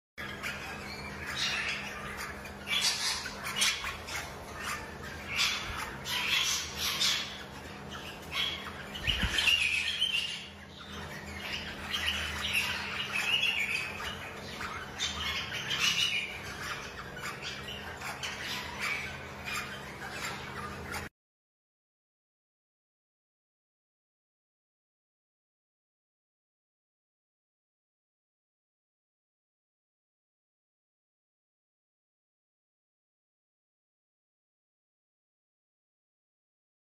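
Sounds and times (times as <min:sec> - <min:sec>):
parrots squawking and chirping: 0:00.2 - 0:21.1.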